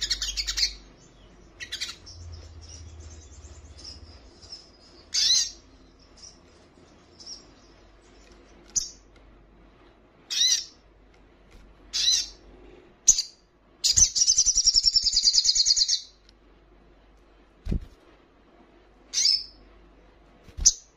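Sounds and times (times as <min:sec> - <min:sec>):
sunbird chirping and trilling: 0:00.0 - 0:09.1, 0:10.2 - 0:10.8, 0:11.9 - 0:12.4, 0:13.0 - 0:16.2, 0:19.1 - 0:19.6.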